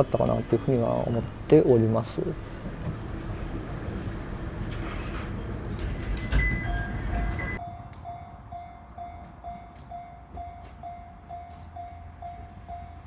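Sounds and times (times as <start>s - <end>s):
level crossing warning bell: 0.0s - 4.6s, 5.8s - 13.0s
train running: 0.0s - 7.6s.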